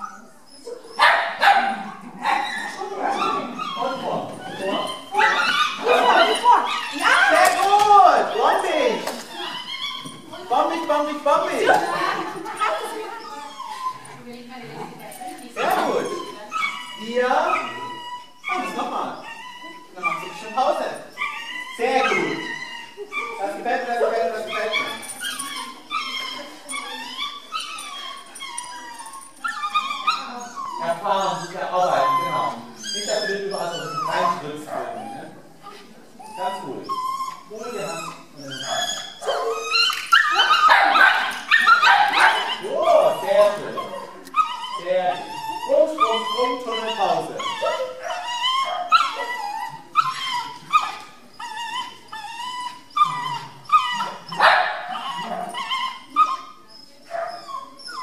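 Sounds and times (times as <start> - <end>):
dog yipping and whining: 0.0 - 1.7, 2.3 - 10.8, 15.6 - 58.0
dog barking harshly: 1.0 - 2.6, 40.4 - 42.5, 54.3 - 55.0.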